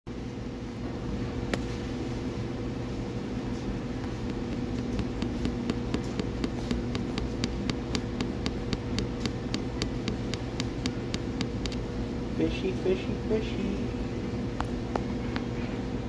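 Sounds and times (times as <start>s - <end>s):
electric equipment hum: 0.1s - 16.0s
fast regular ticking: 4.3s - 11.9s.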